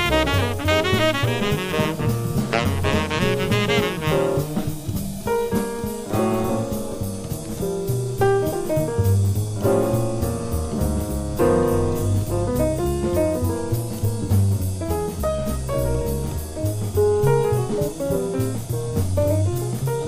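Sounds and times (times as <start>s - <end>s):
tenor saxophone with vibrato: 0.0s - 4.5s
drums: 0.0s - 20.0s
piano: 0.0s - 20.0s
walking bass: 0.0s - 20.0s.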